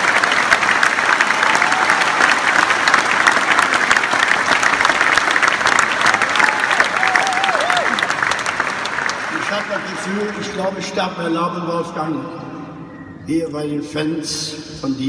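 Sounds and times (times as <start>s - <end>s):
audience applauding: 0.0s - 11.0s.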